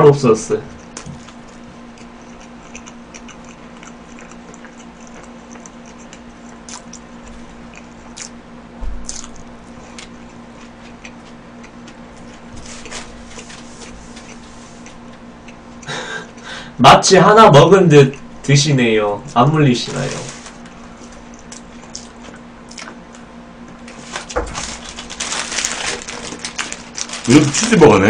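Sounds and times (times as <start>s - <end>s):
faint steady hum: 0.0s - 28.0s
chewing mouth clicks: 0.8s - 8.4s, 21.3s - 23.2s.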